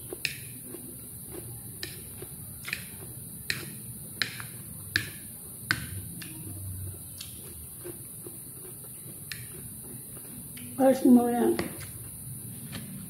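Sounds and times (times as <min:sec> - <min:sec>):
fork clicking on plate: 0:01.8 - 0:06.4.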